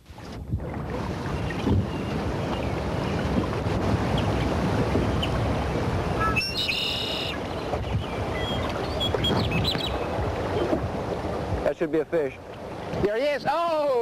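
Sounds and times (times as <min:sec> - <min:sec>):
river water rushing: 0:00.8 - 0:14.0
warbling bird call: 0:06.1 - 0:10.7
small birds chirping: 0:06.2 - 0:10.7.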